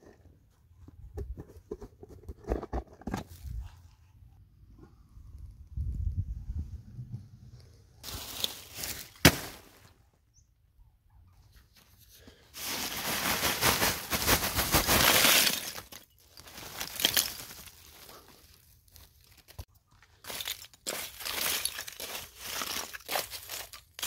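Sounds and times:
charcoal clattering into pit: 12.6s - 17.7s.

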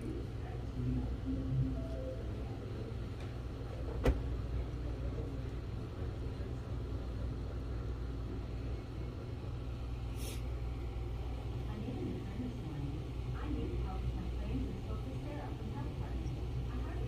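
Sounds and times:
low room rumble: 0.0s - 17.0s
short hiss: 10.1s - 10.5s.

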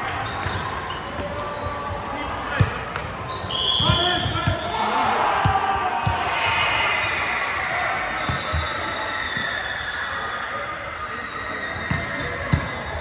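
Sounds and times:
echoing murmur of voices: 0.0s - 13.0s
basketball bouncing: 11.9s - 12.9s.

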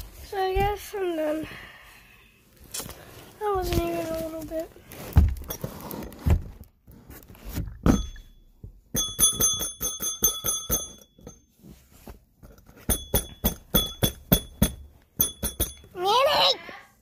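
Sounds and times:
small bell ringing: 7.9s - 11.5s, 12.9s - 16.0s.

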